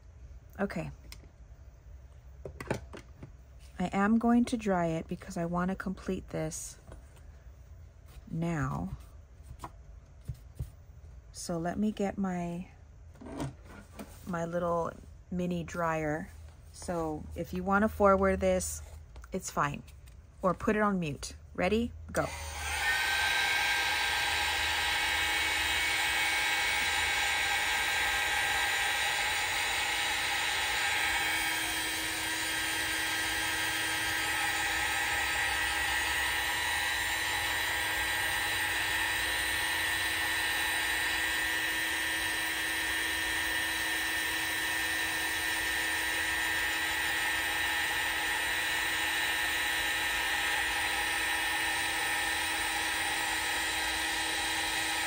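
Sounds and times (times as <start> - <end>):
hot air gun fan whine: 22.1 - 55.0.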